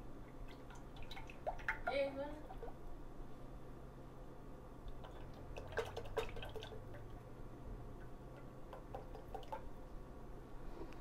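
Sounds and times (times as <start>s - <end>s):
small drip-like plops: 0.2s - 2.8s, 4.9s - 7.3s, 8.0s - 9.7s.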